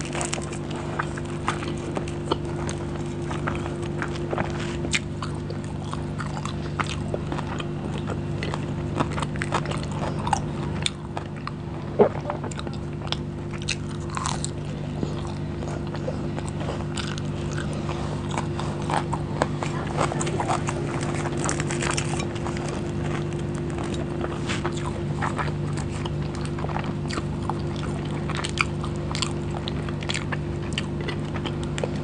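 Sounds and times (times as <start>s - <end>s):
low hum: 0.0s - 32.0s
person chewing food: 0.0s - 32.0s.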